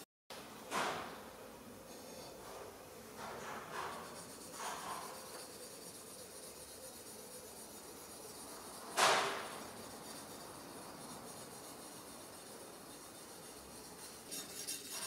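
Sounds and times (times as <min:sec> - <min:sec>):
sharpening stone scraping blade: 0:03.8 - 0:15.0.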